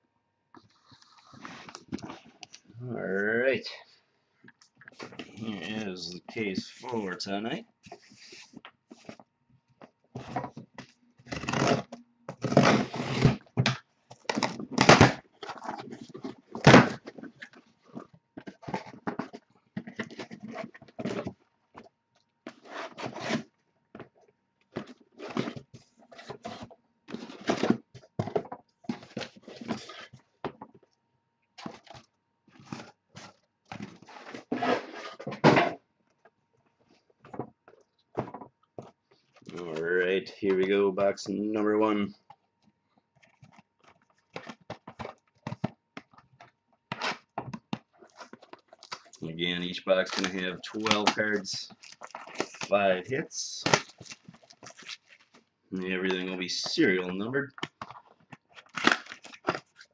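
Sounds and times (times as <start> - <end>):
cardboard scraping and rustling: 7.8 - 9.3, 10.1 - 13.6, 14.2 - 21.9, 22.5 - 30.8, 31.6 - 35.8, 43.2 - 59.9
boxes thunking down: 10.2 - 17.4, 33.8 - 35.8.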